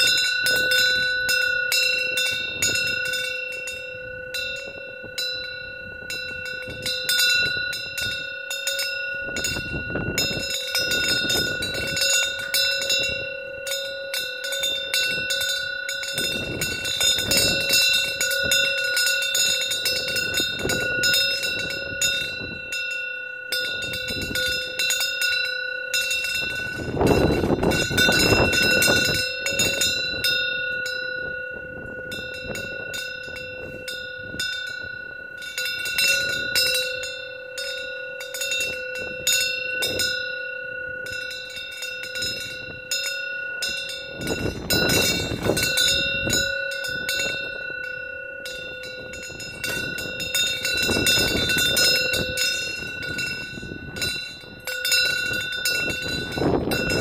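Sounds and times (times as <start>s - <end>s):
wind bell ringing: 0.0s - 57.0s
gusts of wind rushing: 9.1s - 13.4s, 14.4s - 22.8s, 26.3s - 30.4s, 43.6s - 57.0s.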